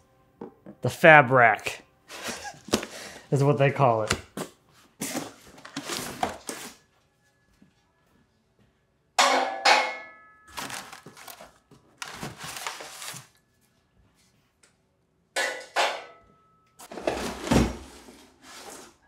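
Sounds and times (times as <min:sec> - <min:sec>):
paper packing rustling: 0:05.0 - 0:06.8, 0:10.5 - 0:13.4.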